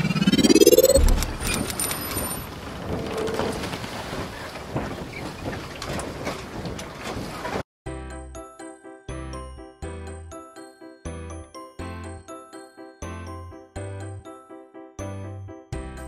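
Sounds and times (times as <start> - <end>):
rising sweep: 0.0 - 1.9
low boom: 0.3 - 1.8.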